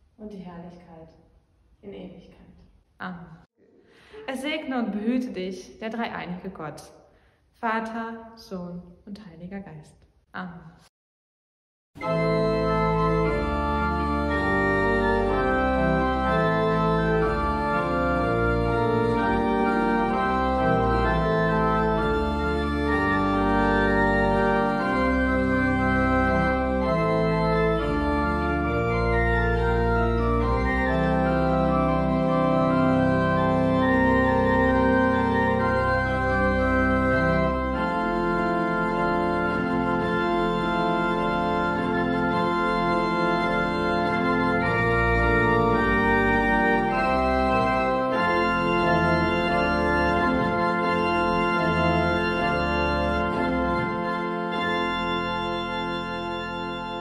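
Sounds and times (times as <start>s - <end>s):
organ music: 12.0s - 57.0s.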